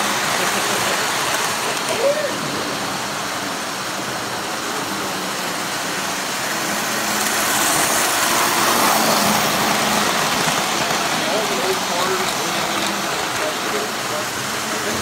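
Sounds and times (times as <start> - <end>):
model train rumbling on track: 0.0 - 15.0.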